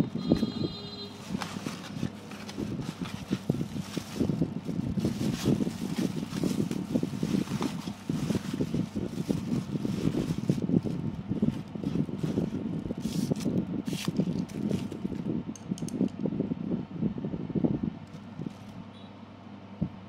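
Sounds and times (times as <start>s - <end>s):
plastic film rustling and crinkling: 0.2s - 15.3s.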